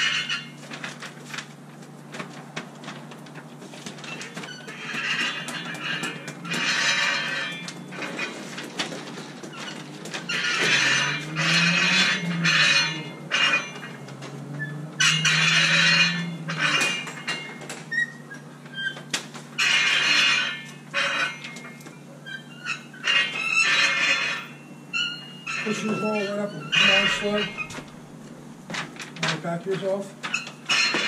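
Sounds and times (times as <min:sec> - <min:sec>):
roller squeaking: 0:00.0 - 0:31.0.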